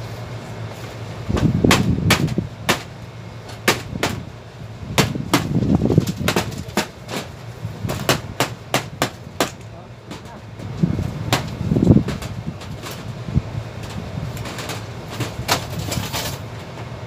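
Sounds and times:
metal knocks and bangs: 0:05.0 - 0:13.1, 0:13.8 - 0:16.4.

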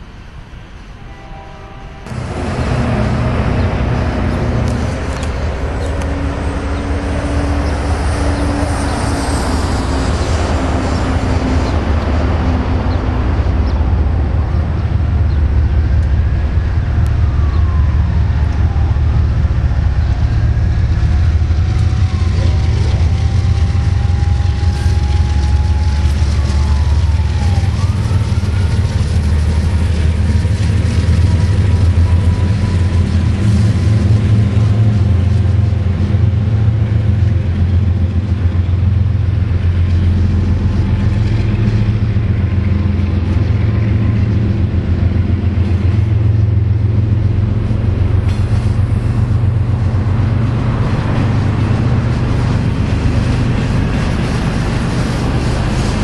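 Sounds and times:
diesel locomotive engine drone: 0:00.0 - 0:56.0
train wheel squeals: 0:21.7 - 0:35.6.

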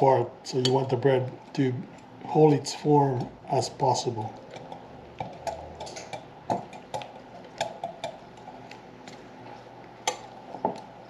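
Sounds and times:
whisk tapping glass bowl: 0:04.5 - 0:08.5.

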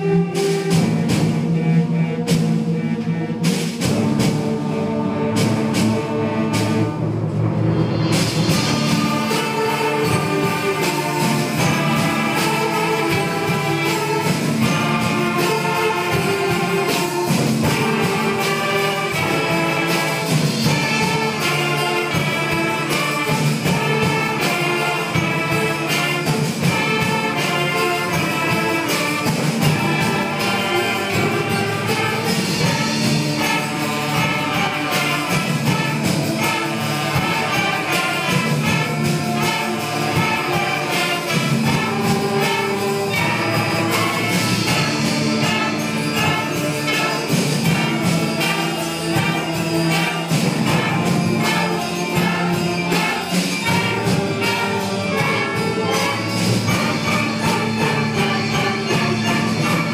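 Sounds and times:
concert band playing: 0:00.0 - 0:59.9.

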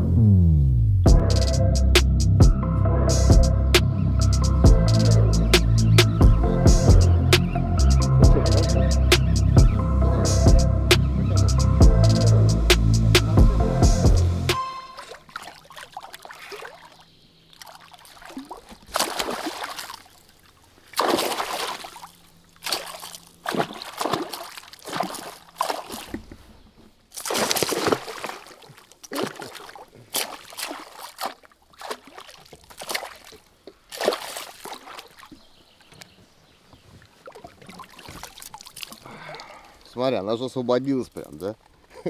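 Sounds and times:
water noise: 0:01.1 - 0:41.9
fish thrashing and splashing: 0:14.9 - 0:26.4, 0:27.1 - 0:36.0, 0:37.0 - 0:39.9.

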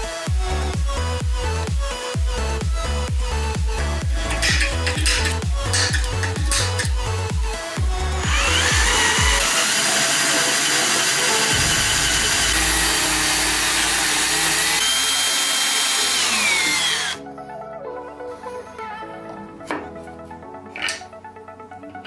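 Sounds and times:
background music: 0:00.0 - 0:22.0
power drill boring through steel: 0:04.2 - 0:07.1, 0:08.0 - 0:17.2.

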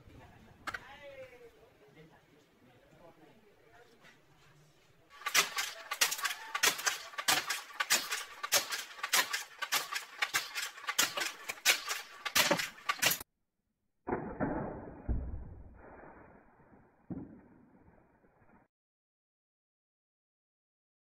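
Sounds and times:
steel balls striking wood: 0:05.2 - 0:13.2.

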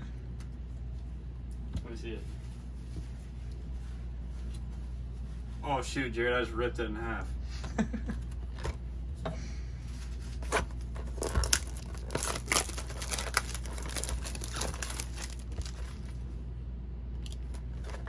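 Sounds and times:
foil wrappers tearing and crinkling: 0:10.4 - 0:16.2, 0:17.3 - 0:18.0.

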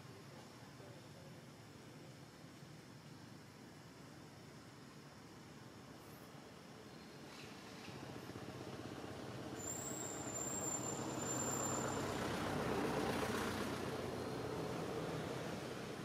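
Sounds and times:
vehicle engine rumbling past: 0:07.4 - 0:16.0
high steady squeal: 0:09.6 - 0:12.2.

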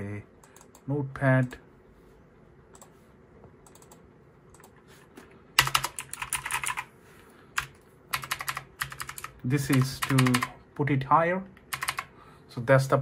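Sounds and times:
mechanical keyboard keystrokes: 0:05.6 - 0:06.9, 0:07.6 - 0:10.5, 0:11.6 - 0:12.1.

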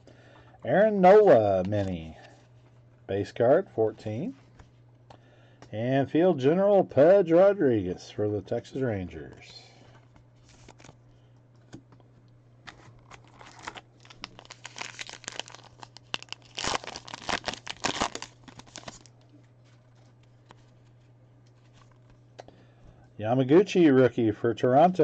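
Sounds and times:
wrapper tearing and crinkling: 0:10.4 - 0:11.0, 0:12.7 - 0:19.2.

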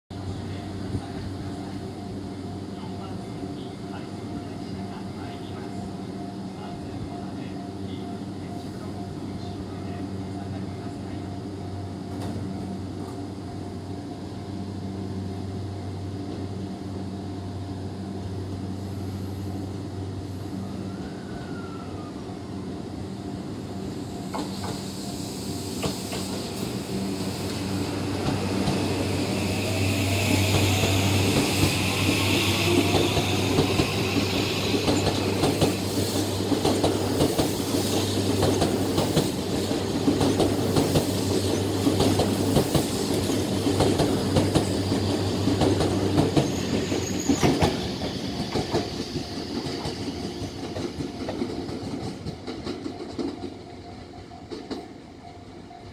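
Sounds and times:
train wheels clacking over rail joints: 0:30.2 - 0:44.8.

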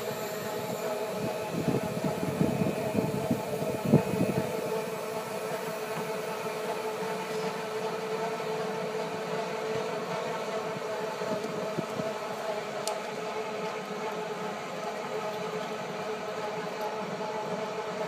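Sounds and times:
golf cart whine: 0:00.0 - 0:09.1.

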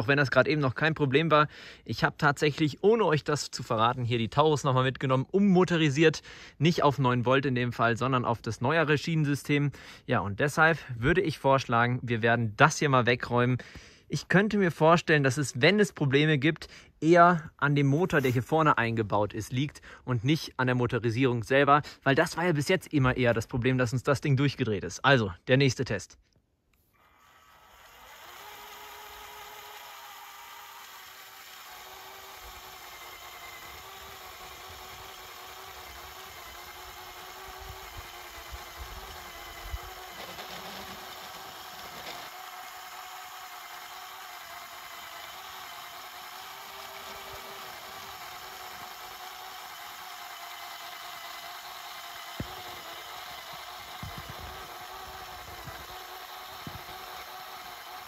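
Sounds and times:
small electric motors whining: 0:26.9 - 0:58.0.

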